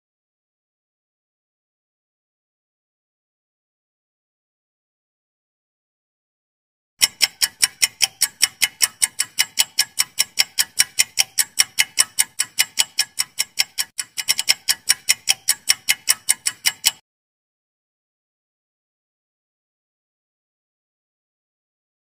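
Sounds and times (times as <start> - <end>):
fast clock ticking: 7.0 - 17.0.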